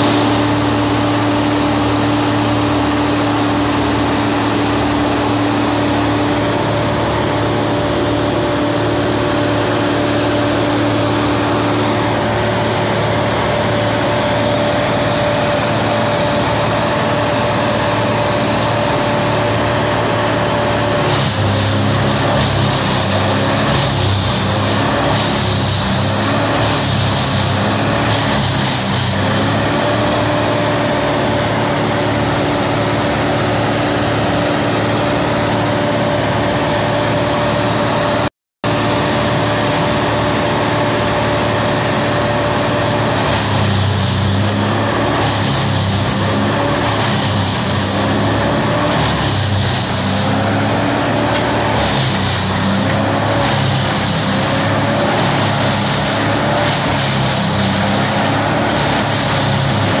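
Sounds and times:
wood chipper engine running: 0:00.0 - 1:00.0
chainsaw cutting branches: 0:20.8 - 0:30.2, 0:43.1 - 1:00.0.

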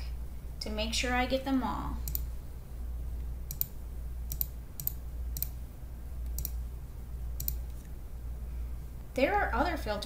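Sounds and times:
low steady hum: 0:00.0 - 0:10.0
computer mouse clicking: 0:02.0 - 0:02.3, 0:03.5 - 0:05.6, 0:06.2 - 0:06.6, 0:07.4 - 0:07.9.

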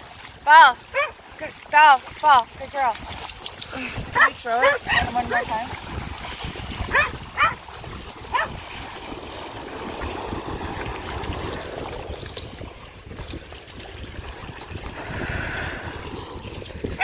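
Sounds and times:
water sloshing as dogs wade: 0:00.0 - 0:17.0
dog yelping: 0:00.9 - 0:01.1, 0:04.2 - 0:05.1, 0:06.9 - 0:07.6, 0:08.3 - 0:08.6.

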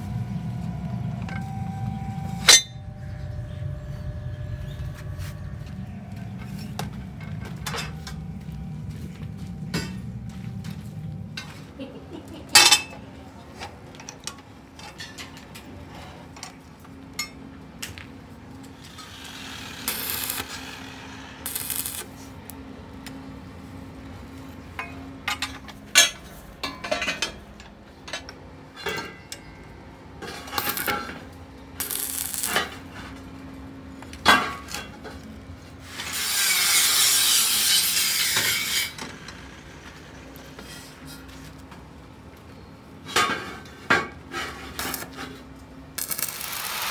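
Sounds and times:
metal rims clanking: 0:00.0 - 0:11.8, 0:24.8 - 0:29.6
steady low hum: 0:00.0 - 0:36.1
rasping metal scrapes: 0:35.9 - 0:39.3.

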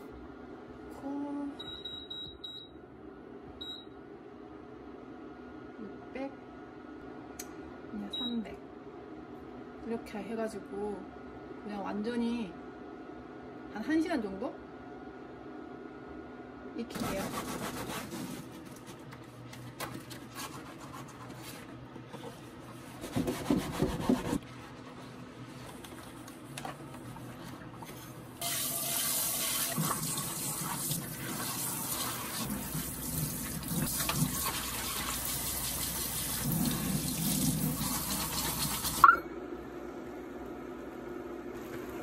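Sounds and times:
sponge scrubbing pots: 0:20.2 - 0:25.9, 0:28.4 - 0:39.0
tap water running and splashing: 0:28.4 - 0:39.0.

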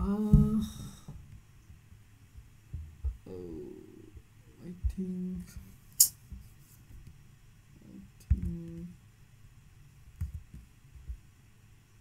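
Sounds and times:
man humming: 0:03.3 - 0:04.2.

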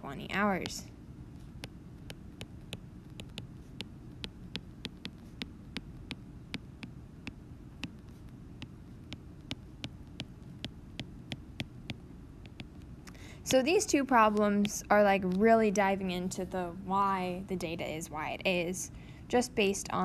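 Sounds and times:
low steady hum: 0:00.0 - 0:20.0
stylus tapping on glass screen: 0:01.6 - 0:12.8.

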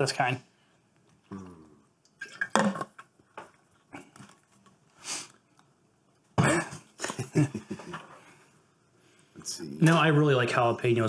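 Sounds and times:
person sniffing: 0:05.0 - 0:05.4.

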